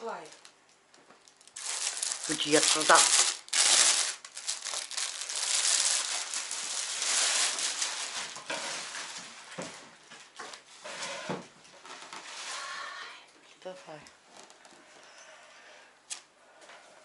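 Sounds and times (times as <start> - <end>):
plastic packaging crinkling: 0.0 - 9.7.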